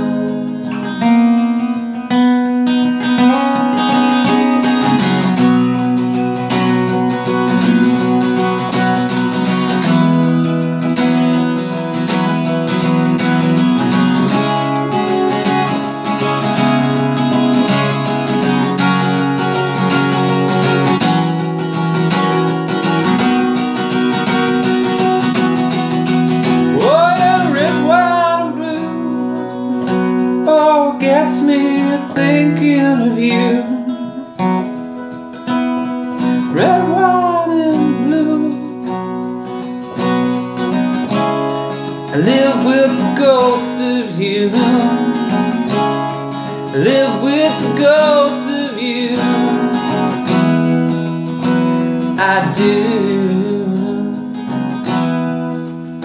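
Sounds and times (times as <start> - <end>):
wordless vocal melody: 0.0 - 54.8
acoustic guitar strumming: 0.0 - 56.0.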